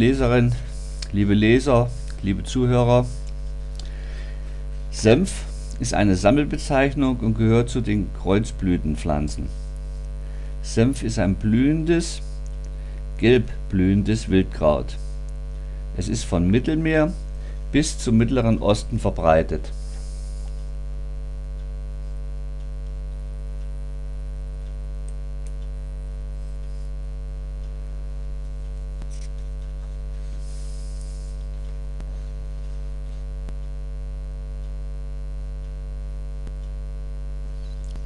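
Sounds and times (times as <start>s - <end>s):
electrical mains hum: 0.0s - 38.0s.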